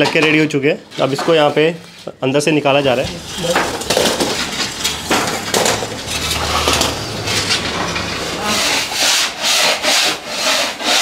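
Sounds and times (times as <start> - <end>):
wooden peel scraping in oven: 2.8 - 11.0.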